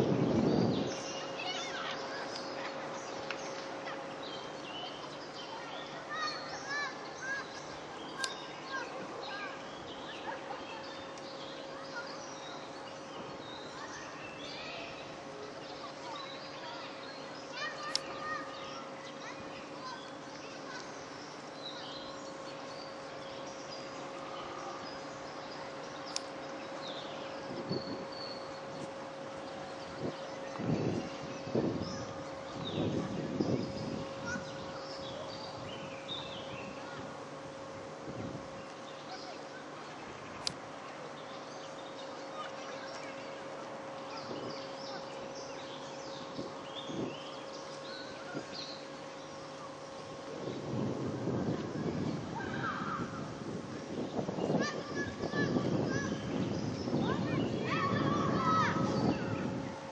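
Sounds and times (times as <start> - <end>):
steady hum: 0.0 - 59.9
sharp click: 8.2 - 8.4, 17.9 - 18.2, 26.1 - 26.3, 40.4 - 40.6.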